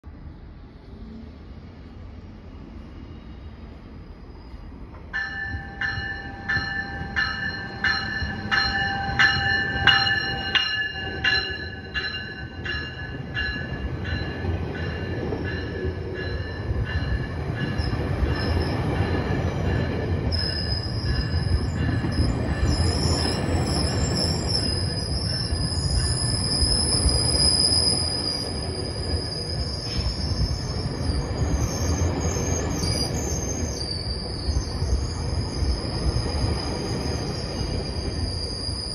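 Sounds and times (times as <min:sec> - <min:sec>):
train coaches rumbling past: 0:00.1 - 0:38.9
train wheels squealing: 0:02.5 - 0:38.9
train bell ringing: 0:04.5 - 0:31.5.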